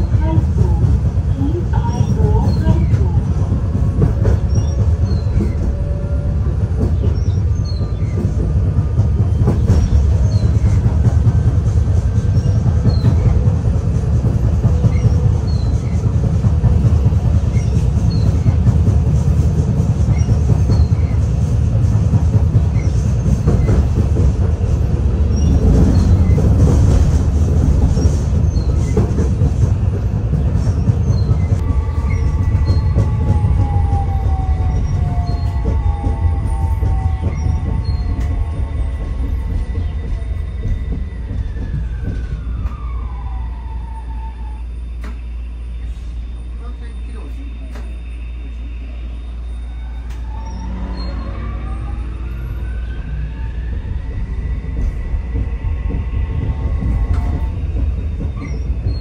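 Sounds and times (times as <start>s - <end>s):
tram wheels rumbling: 0.0s - 59.0s
tram whine: 0.0s - 59.0s.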